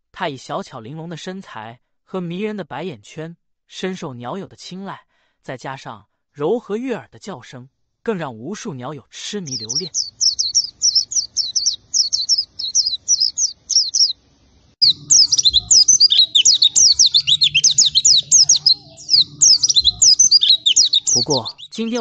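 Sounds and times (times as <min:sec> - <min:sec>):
bird twittering: 0:09.5 - 0:14.2, 0:14.8 - 0:22.0.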